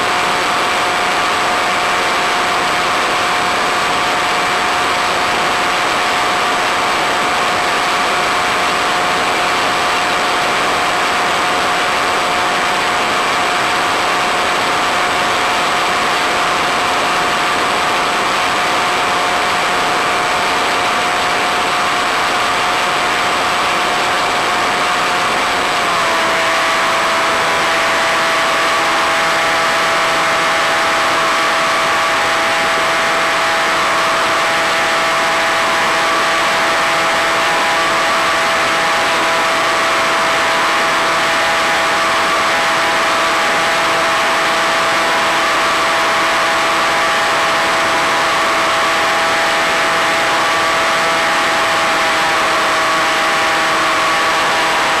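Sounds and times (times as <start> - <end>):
model plane electric motor whine: 14.9 - 55.0.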